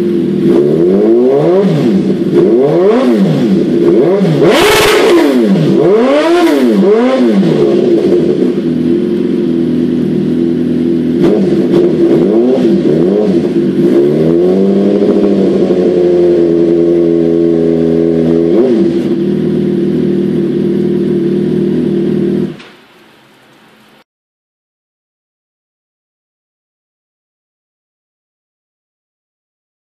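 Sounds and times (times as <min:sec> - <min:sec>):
motorcycle engine revving: 0:00.0 - 0:22.7.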